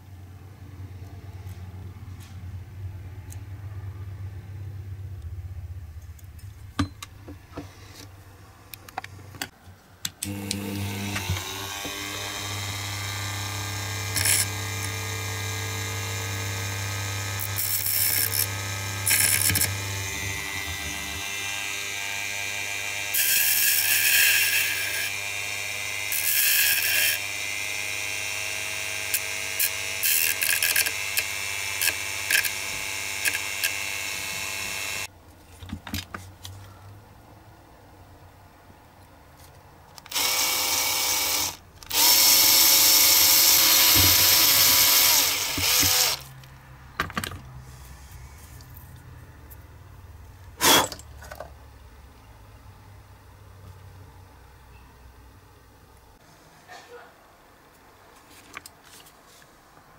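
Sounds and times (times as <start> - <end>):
rotary tool spinning: 10.3 - 35.1, 40.1 - 46.3.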